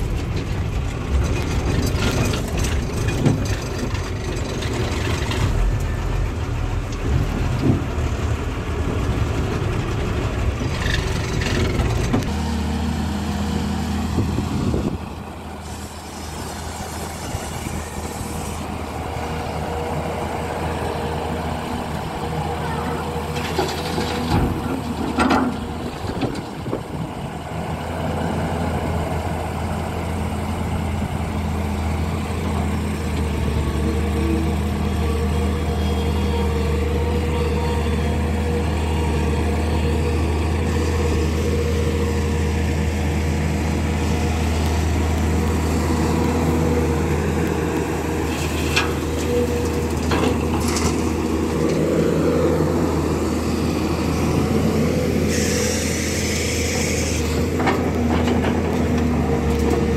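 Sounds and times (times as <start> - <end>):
excavator diesel engine: 0.0 - 59.9
hiss: 55.2 - 57.4.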